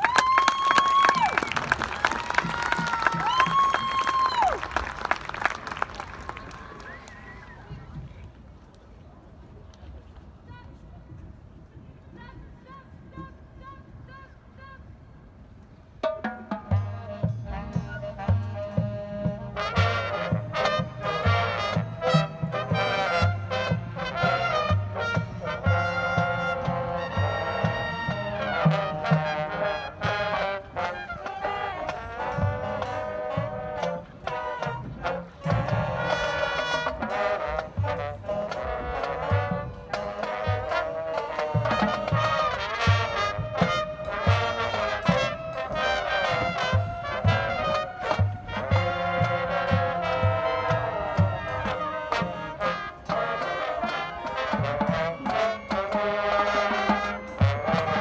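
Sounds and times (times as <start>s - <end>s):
school band playing: 16.0s - 58.0s
brass section playing tune: 16.7s - 58.0s.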